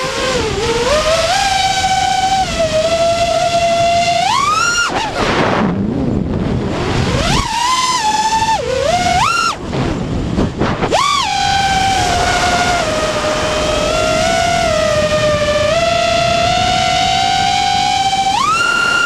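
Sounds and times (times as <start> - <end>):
quadcopter motors whining: 0.0 - 19.0
rushing air: 4.4 - 15.5.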